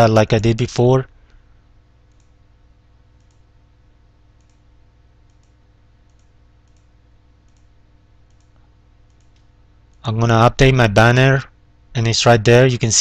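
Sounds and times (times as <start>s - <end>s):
low steady hum: 0.0s - 13.0s
computer mouse clicking: 2.1s - 2.4s, 3.2s - 3.4s, 4.4s - 4.6s, 5.2s - 9.5s.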